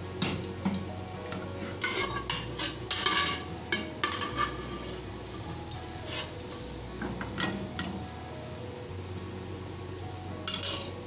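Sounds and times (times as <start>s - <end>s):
metal spoon scraping steel pot: 1.3s - 6.7s, 10.5s - 11.0s.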